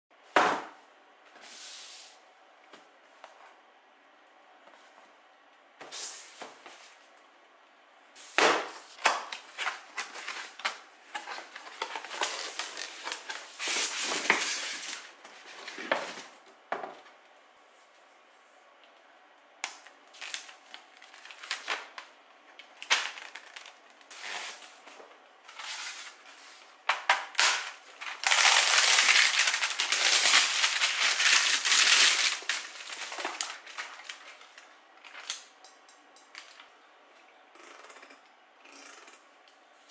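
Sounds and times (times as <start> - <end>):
paper and plastic rustling: 9.4 - 16.4, 20.1 - 35.5
plastic film crinkling: 20.0 - 22.0, 22.7 - 24.5, 27.3 - 35.5.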